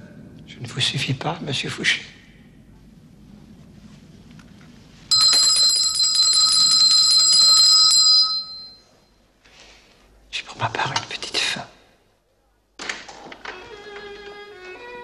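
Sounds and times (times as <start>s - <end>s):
small hand bell ringing: 5.1s - 9.0s.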